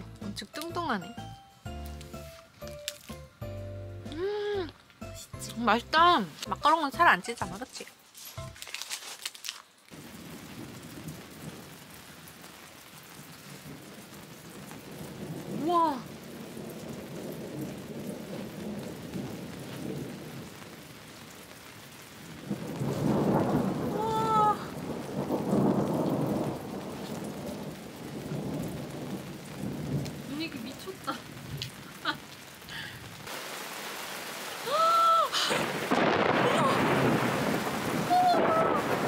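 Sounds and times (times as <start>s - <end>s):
steady rain: 0.0s - 39.0s
woman gasping: 4.1s - 4.8s, 32.7s - 33.1s, 34.8s - 35.8s
thunder rumbling: 13.2s - 21.0s, 22.2s - 33.4s, 34.6s - 39.0s.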